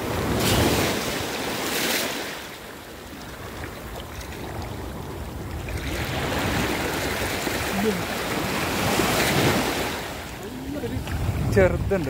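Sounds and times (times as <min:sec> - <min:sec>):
surf waves washing on sand: 0:00.0 - 0:12.0.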